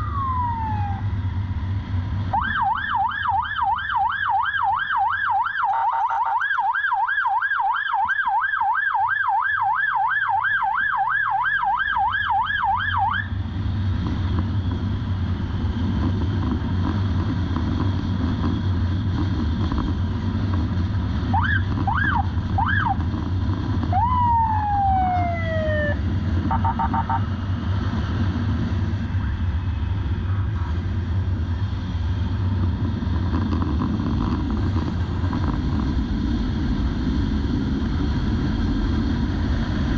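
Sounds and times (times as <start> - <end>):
short siren chirps: 0.0 - 1.1, 2.4 - 7.8
motorcycle siren yelping: 0.0 - 1.2, 2.3 - 13.4, 21.2 - 23.2, 23.8 - 27.4
motorcycle engine riding: 12.4 - 39.9
wind noise: 13.3 - 39.9.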